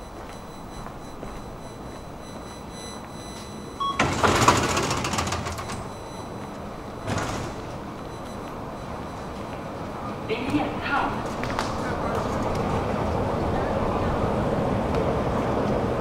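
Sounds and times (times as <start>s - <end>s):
ticket barrier beep: 0.0s - 10.8s
gate panels sliding open: 4.0s - 5.9s, 7.0s - 7.8s.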